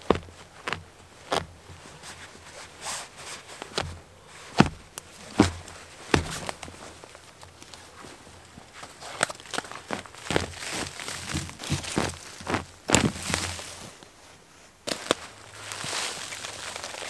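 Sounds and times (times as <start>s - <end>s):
earth rustling: 0.0s - 14.2s, 14.8s - 17.0s
root snapping: 9.1s - 13.8s, 14.9s - 17.0s.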